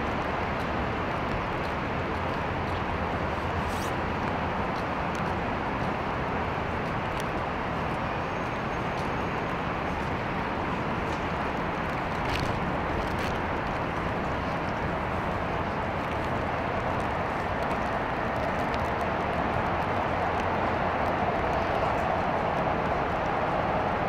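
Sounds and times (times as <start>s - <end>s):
rain on pavement: 0.0s - 24.0s.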